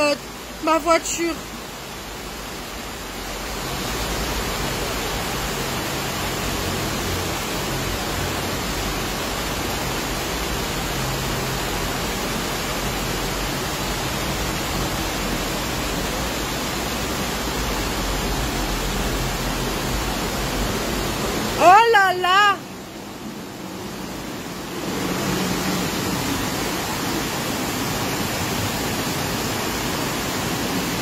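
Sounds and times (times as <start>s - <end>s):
floodwater rushing through street: 0.0s - 31.0s
torrential rain: 0.0s - 31.0s.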